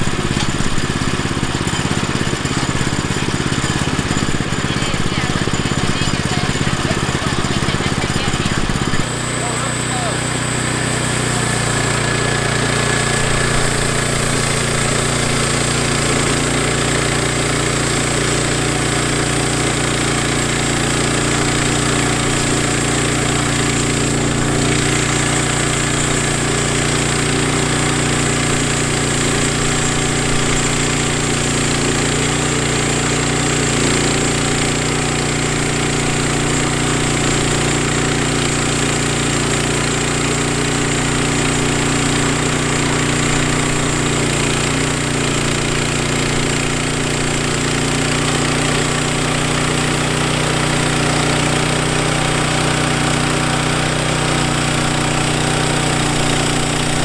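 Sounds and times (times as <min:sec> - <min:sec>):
bandsaw mill cutting a log: 0:00.0 - 0:57.0.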